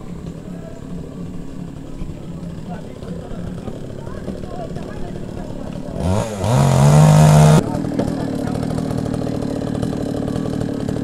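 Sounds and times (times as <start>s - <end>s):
chainsaw idling: 0.1s - 11.0s
small engine revving: 3.3s - 11.0s.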